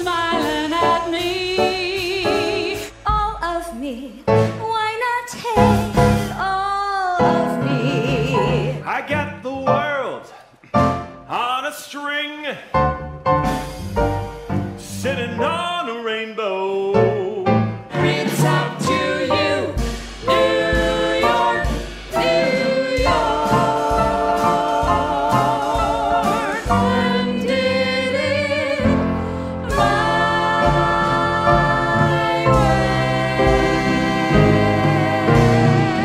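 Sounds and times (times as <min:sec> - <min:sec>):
vocal ensemble singing: 0:00.0 - 0:03.0, 0:05.4 - 0:08.9, 0:14.8 - 0:36.0
instrumental accompaniment: 0:07.2 - 0:11.4, 0:12.7 - 0:15.8, 0:17.0 - 0:36.0.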